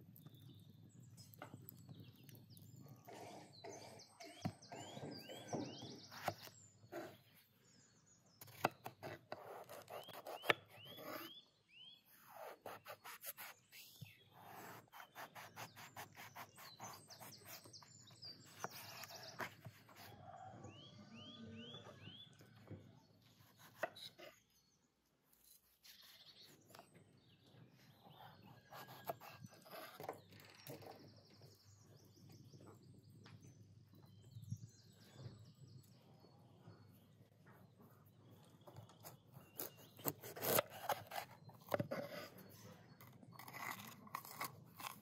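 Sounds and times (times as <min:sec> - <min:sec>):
birds chirping: 0:00.0 - 0:44.2.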